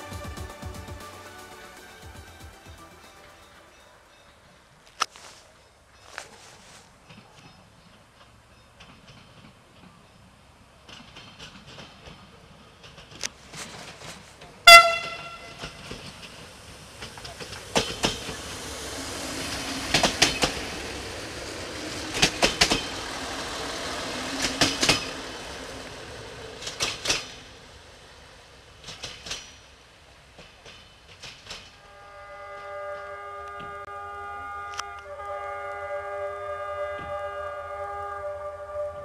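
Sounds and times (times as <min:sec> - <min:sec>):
train engine running: 0:00.0 - 0:39.0
wheel clicks over rail joints: 0:07.0 - 0:18.6, 0:19.9 - 0:28.1, 0:28.7 - 0:31.8
train horn toot: 0:14.6 - 0:16.0, 0:17.7 - 0:25.8, 0:31.8 - 0:39.0.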